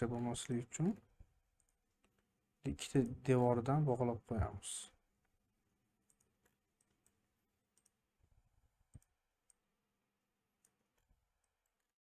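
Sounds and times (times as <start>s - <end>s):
computer mouse clicks: 6.0s - 8.1s, 8.8s - 9.7s, 10.6s - 11.9s.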